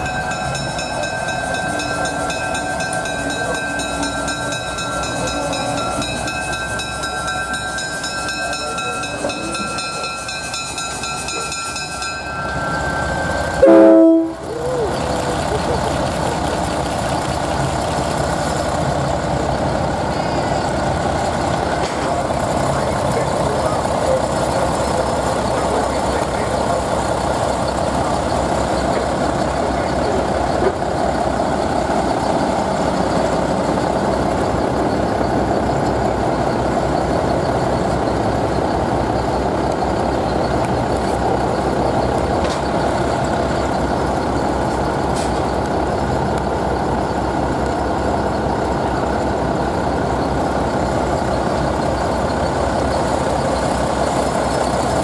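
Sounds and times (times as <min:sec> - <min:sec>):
large vehicle engine running: 0:00.0 - 0:55.0.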